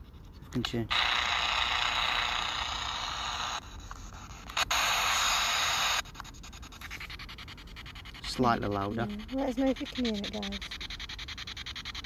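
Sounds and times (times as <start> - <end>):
radio static hiss: 0.6 - 6.0.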